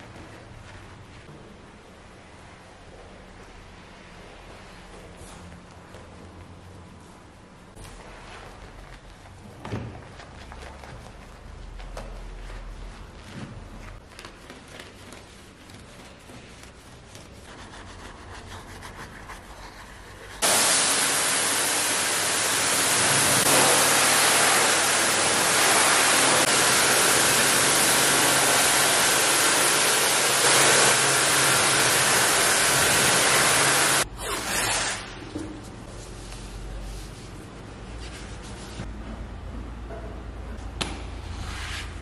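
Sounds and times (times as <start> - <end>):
brush scrubbing: 10.2 - 34.0
pressure washer spraying: 20.4 - 34.0.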